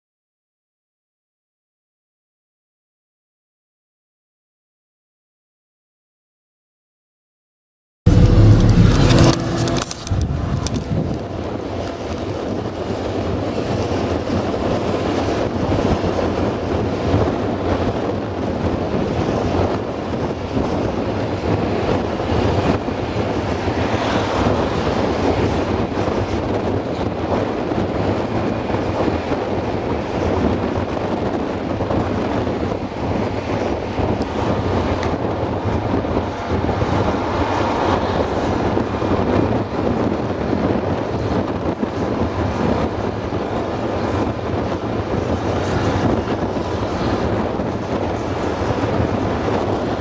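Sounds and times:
farm vehicle engine running: 0:08.1 - 0:14.3
wind noise on microphone: 0:08.1 - 0:50.0.

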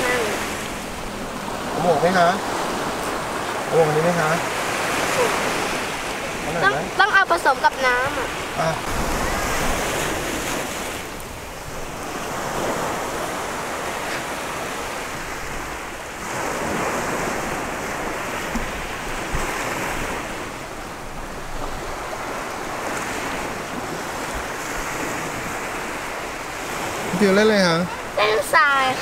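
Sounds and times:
wind buffeting microphone: 0:00.0 - 0:27.2
sea surf washing onto beach: 0:00.0 - 0:29.0.

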